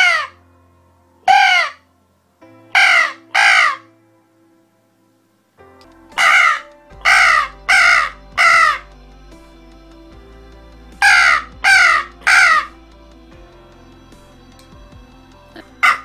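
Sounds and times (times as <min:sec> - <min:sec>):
crow caller caws: 0:01.3 - 0:01.8, 0:02.8 - 0:03.9, 0:06.2 - 0:08.8, 0:11.0 - 0:12.7.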